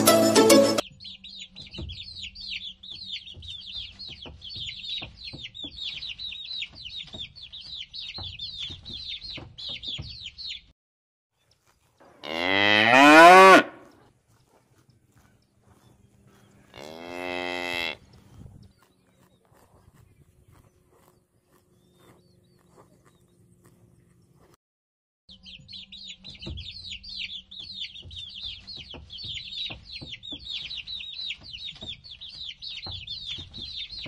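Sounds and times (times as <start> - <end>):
baby chicks cheeping: 0.7 - 10.7, 13.8 - 24.6, 25.3 - 34.0
cow mooing: 12.1 - 13.9, 16.7 - 18.0.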